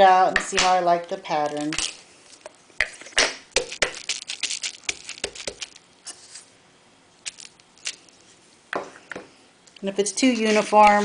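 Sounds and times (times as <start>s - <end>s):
bubble wrap popping: 1.4s - 6.5s, 7.2s - 8.2s.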